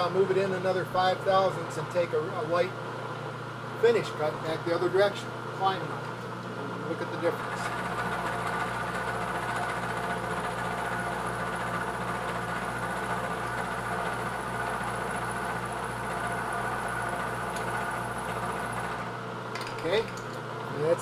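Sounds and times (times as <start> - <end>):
motor hum: 0.0 - 21.0
milling machine cutting metal: 7.2 - 19.1.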